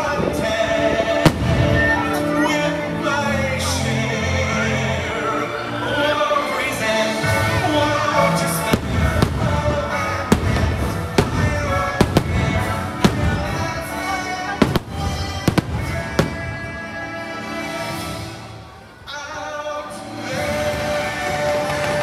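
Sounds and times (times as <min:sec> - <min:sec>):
show music: 0:00.0 - 0:22.0
fireworks bursting with sharp bangs: 0:01.1 - 0:02.4, 0:07.3 - 0:18.4.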